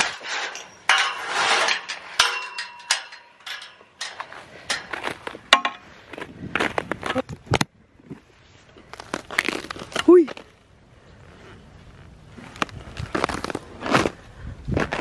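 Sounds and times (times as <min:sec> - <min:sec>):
footsteps on frozen snow: 0:05.0 - 0:07.3, 0:11.8 - 0:15.0.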